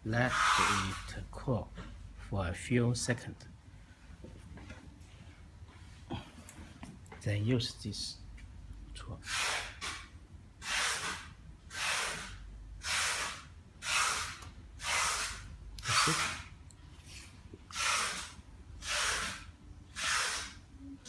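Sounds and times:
hand tool rubbing strokes: 0.1 - 1.2, 9.2 - 10.0, 10.6 - 20.6.

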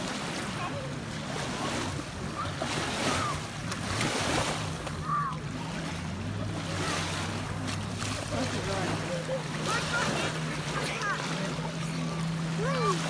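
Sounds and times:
low engine hum: 0.0 - 13.0
water splashing and lapping: 0.0 - 13.0.

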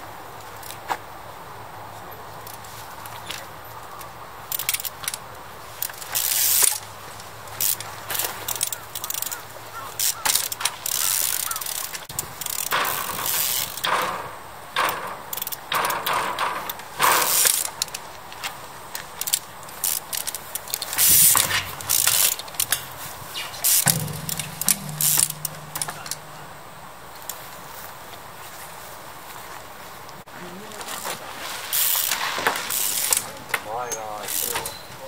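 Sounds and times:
bicycle brake and drivetrain rattles: 5.8 - 6.8, 7.6 - 18.0, 19.1 - 26.3
bicycle landing on concrete: 20.9 - 26.1.

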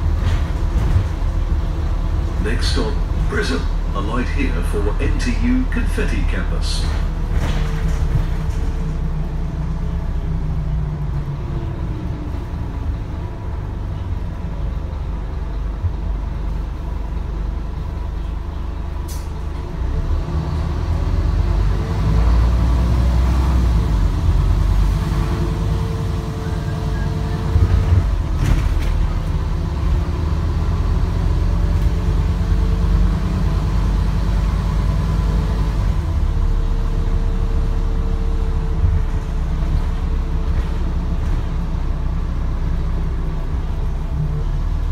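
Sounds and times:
bus diesel engine drone: 0.0 - 44.9
knocks and rattles: 6.8 - 9.0.

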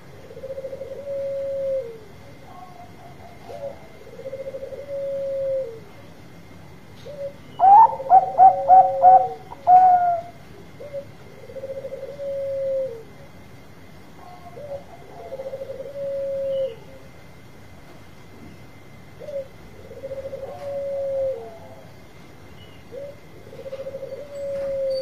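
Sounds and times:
dove cooing: 0.0 - 5.9, 7.0 - 13.3, 14.2 - 17.1, 19.2 - 21.9, 22.9 - 25.0.

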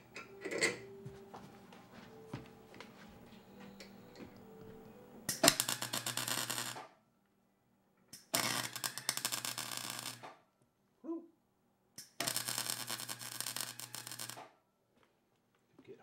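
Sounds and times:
welding arc crackling: 5.3 - 6.8, 8.2 - 10.3, 12.0 - 14.4.

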